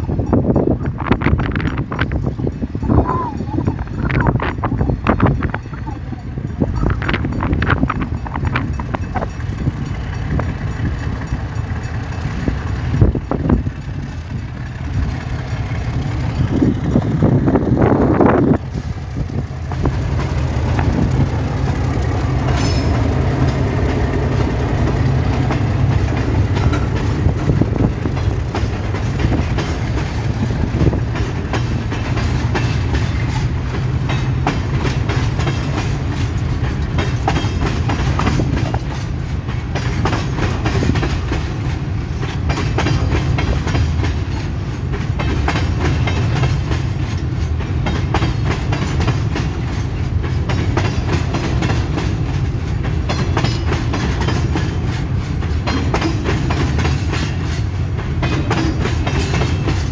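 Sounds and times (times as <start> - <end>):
diesel locomotive engine running: 0.0 - 59.9
freight cars rolling by: 0.0 - 59.9
wheels clicking over rail joints: 0.0 - 59.9.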